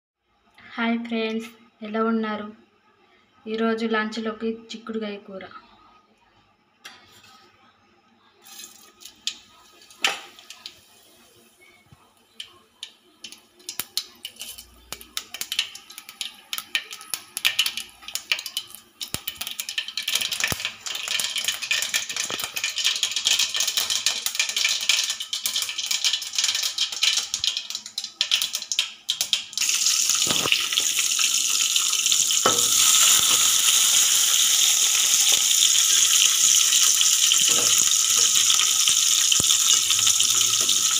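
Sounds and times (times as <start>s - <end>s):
beans sizzling in hot oil: 8.4s - 40.9s
oil crackling and popping: 8.7s - 10.8s, 12.4s - 40.9s.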